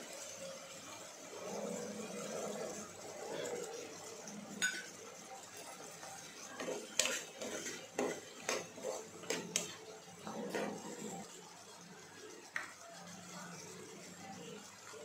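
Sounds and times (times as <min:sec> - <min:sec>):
spoon clinking and scraping pan: 0:04.5 - 0:11.3.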